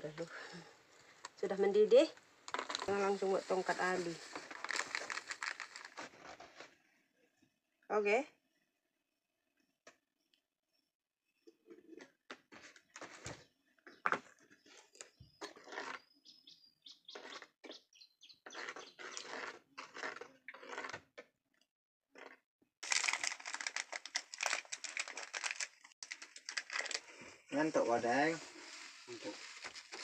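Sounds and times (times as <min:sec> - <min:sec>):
faint bird chirps: 0:13.9 - 0:19.2
spoon scraping in clay pot: 0:14.6 - 0:16.2, 0:18.4 - 0:21.0.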